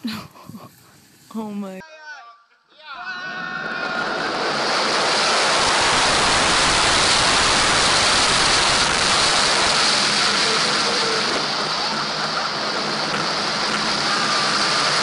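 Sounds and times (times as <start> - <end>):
wind rushing over microphone: 3.2 - 15.0.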